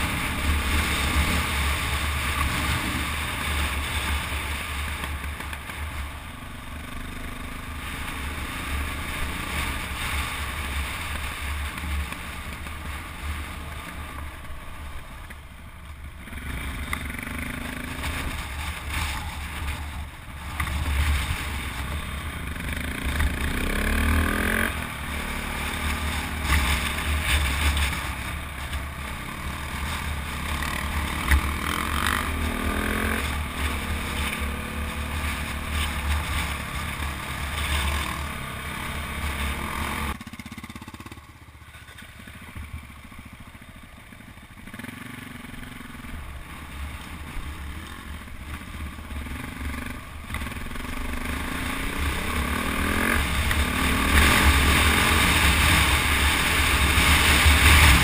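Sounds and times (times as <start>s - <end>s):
dirt bike engine revving: 0.0s - 4.9s, 16.2s - 28.3s, 29.0s - 41.4s, 44.6s - 58.0s.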